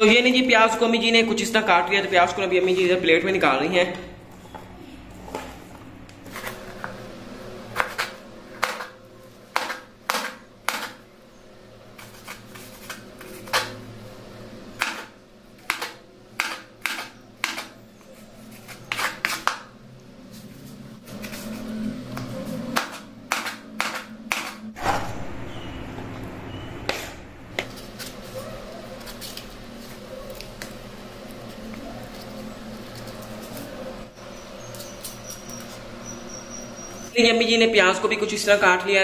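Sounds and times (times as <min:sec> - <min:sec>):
knife chopping on wooden board: 0:15.7 - 0:17.7, 0:22.7 - 0:24.6.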